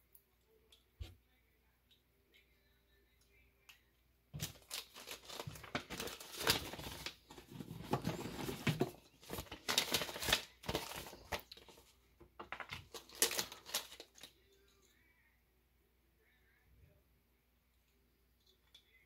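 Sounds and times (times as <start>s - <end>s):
paper envelope rustling: 4.4s - 14.3s
plastic bag crinkling: 4.4s - 14.4s.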